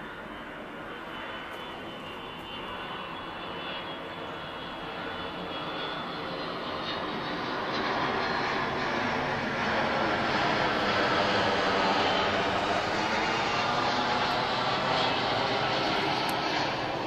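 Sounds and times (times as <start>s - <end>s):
faint high whine: 0.0s - 17.0s
jet aircraft passing overhead: 0.0s - 17.0s.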